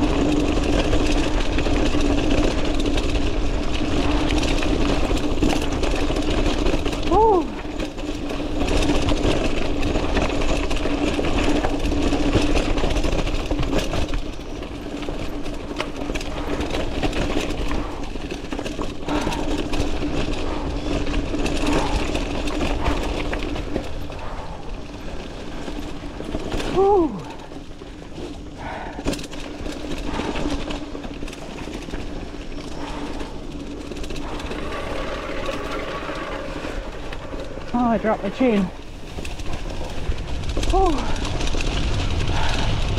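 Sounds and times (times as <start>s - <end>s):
bike rattling over bumps: 0.0s - 42.9s
bike tyre noise: 0.0s - 42.9s
wind: 0.0s - 42.9s.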